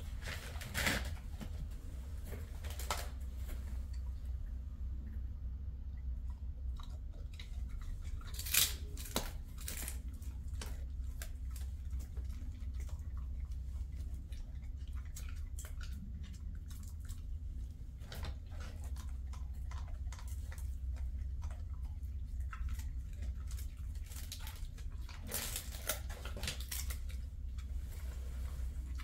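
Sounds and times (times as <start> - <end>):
steady low hum: 0.0 - 29.0
dog chewing treat: 6.1 - 27.8.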